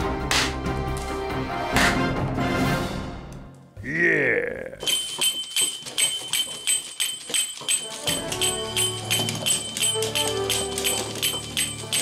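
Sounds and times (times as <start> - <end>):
toy monkey clashing metal cymbals: 4.8 - 12.0.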